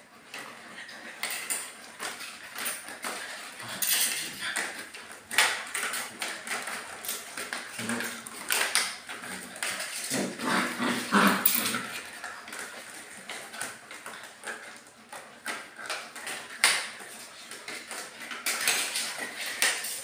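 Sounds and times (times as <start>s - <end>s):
puppy grunt: 7.7s - 13.0s.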